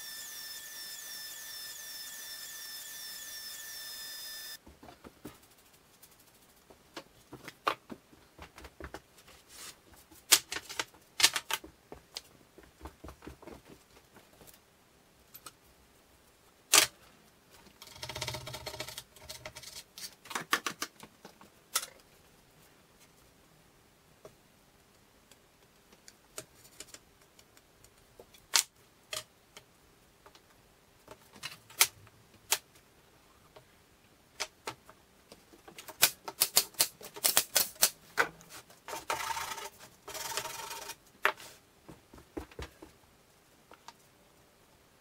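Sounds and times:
miter saw motor whining: 0.0s - 4.6s.

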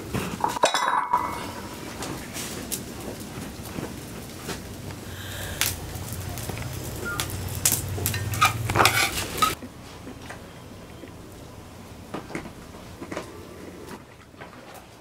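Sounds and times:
low steady hum: 0.0s - 15.0s
bowls and utensils clinking: 0.2s - 2.1s, 6.4s - 9.6s.

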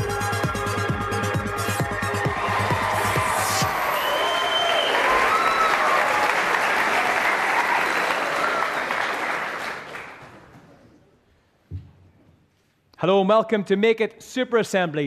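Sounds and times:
children applauding: 1.7s - 10.7s.

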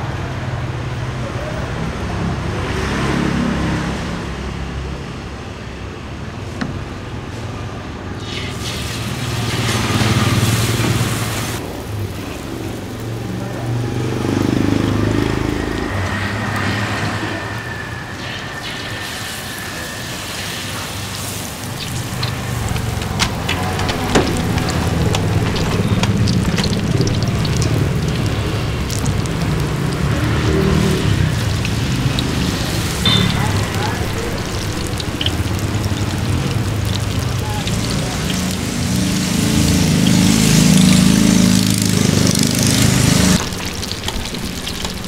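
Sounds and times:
motorbike engines passing: 0.0s - 8.2s, 8.9s - 45.0s
hot oil crackling and sizzling: 8.2s - 45.0s.

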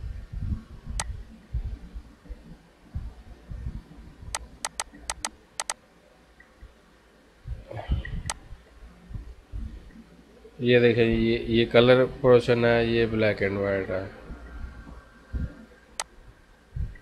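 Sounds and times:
computer mouse clicking: 1.0s - 1.2s, 4.3s - 5.8s.

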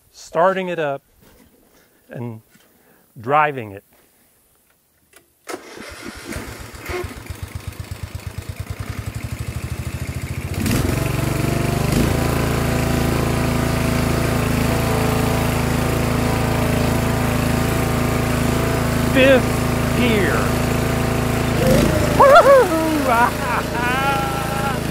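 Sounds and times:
starter cranking engine: 5.5s - 24.9s
mower engine running: 5.6s - 24.9s.

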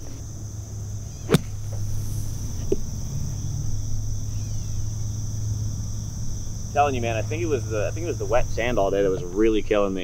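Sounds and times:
crickets chirping: 0.0s - 10.0s
low steady hum: 0.0s - 10.0s
golf club striking sand: 1.0s - 3.4s.

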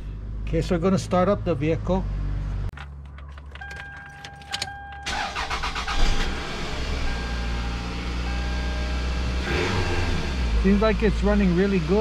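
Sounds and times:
ignition key clicks: 2.7s - 6.1s
car engine starting and idling: 2.7s - 12.0s.

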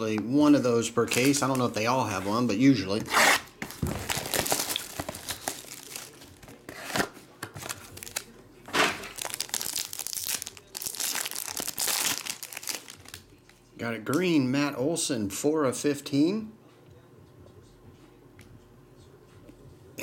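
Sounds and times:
plastic wrapping crinkling and tearing: 3.6s - 13.6s.

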